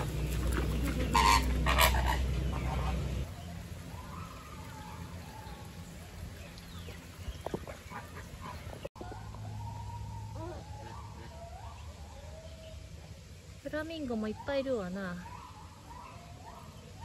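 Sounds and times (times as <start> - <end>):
flamingos honking: 0.0 - 13.2
outdoor background noise: 0.0 - 17.0.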